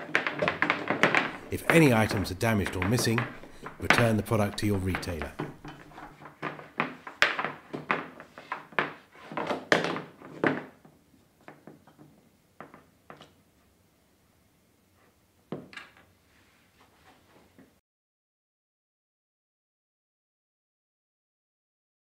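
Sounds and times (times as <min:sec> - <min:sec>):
hard objects knocking and clunking: 0:00.0 - 0:13.4.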